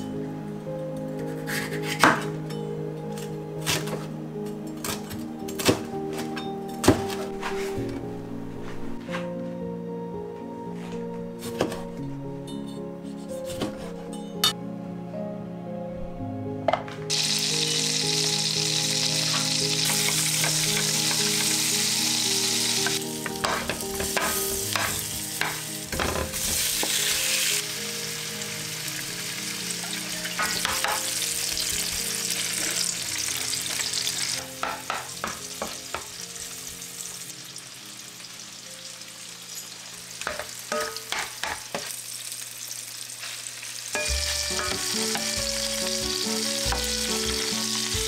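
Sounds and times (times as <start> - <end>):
food sizzling in a pan: 17.1 - 48.0
spatula scraping a pan: 23.4 - 25.6.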